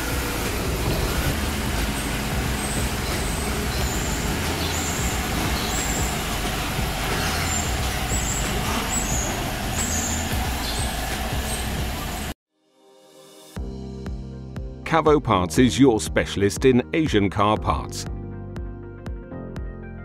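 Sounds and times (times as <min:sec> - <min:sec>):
car engine idling: 0:00.0 - 0:12.4.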